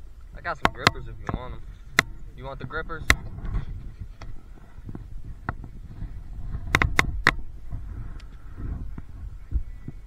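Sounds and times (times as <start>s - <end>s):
handling clicks and knocks: 0.5s - 2.2s
low rumble: 1.0s - 10.0s.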